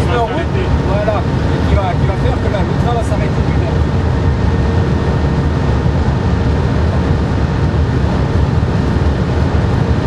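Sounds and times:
high-speed train rumble and rushing: 0.0 - 10.0.

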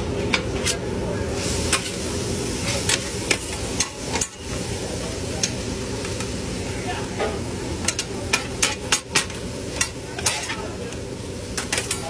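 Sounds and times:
metal spatulas clacking on griddle: 7.8 - 10.7, 11.6 - 12.0.

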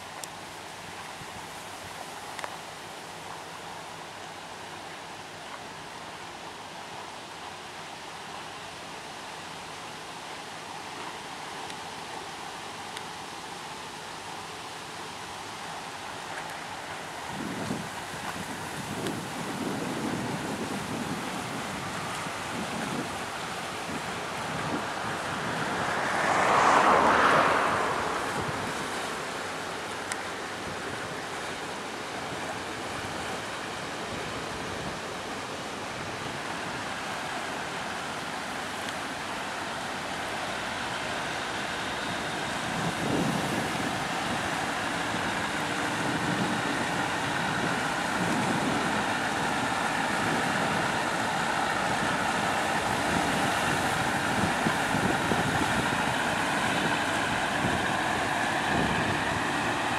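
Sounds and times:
diesel engine hum: 0.0 - 59.9
water rushing along hull: 0.0 - 59.9
wind rush: 17.3 - 29.9, 41.8 - 59.9.

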